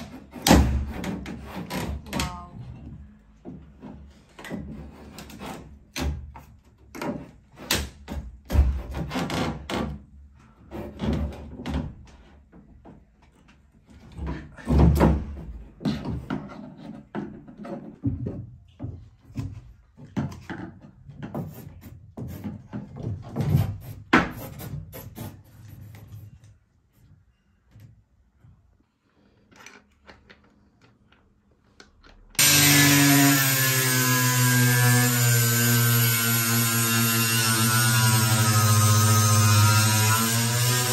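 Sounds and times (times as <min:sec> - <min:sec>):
angle grinder whine: 0:32.4 - 0:40.9.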